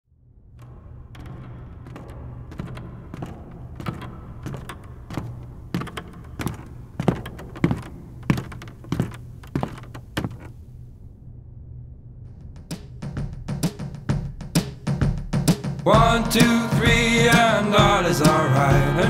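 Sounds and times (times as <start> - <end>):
steady low hum: 0.1 - 17.3
irregular dull knocks: 0.6 - 10.6.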